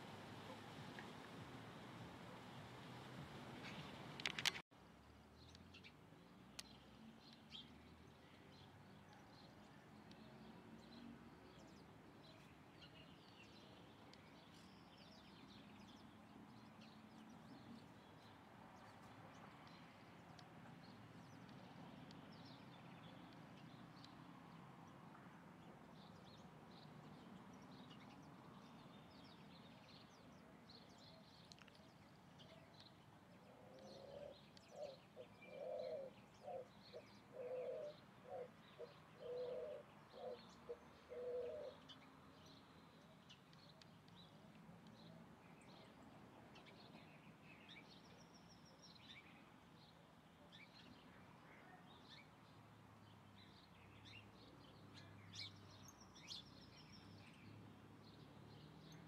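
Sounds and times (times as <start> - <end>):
small birds chirping: 5.4 - 59.0
dove cooing: 33.5 - 36.7, 37.3 - 41.8.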